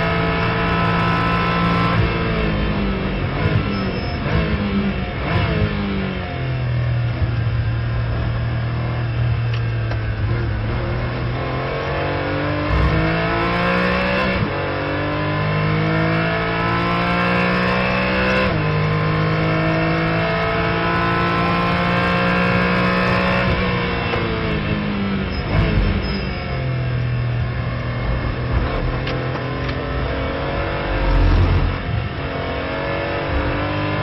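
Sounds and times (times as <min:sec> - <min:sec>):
race car engine accelerating: 0:00.0 - 0:06.0, 0:10.0 - 0:24.7, 0:27.7 - 0:34.0
gear upshifts: 0:28.2 - 0:33.6.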